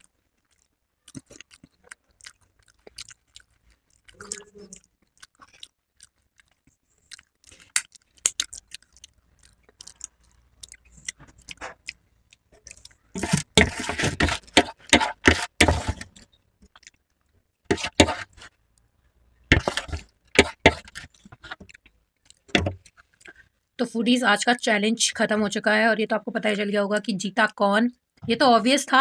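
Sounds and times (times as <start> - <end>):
cutlery scraping plates: 13.2 - 16.1, 17.7 - 18.4, 19.5 - 21.6.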